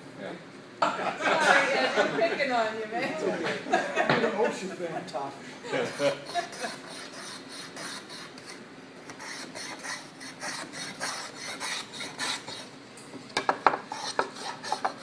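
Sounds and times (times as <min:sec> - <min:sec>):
hand plane scraping wood: 0:05.9 - 0:08.6, 0:09.2 - 0:12.7, 0:13.9 - 0:15.0.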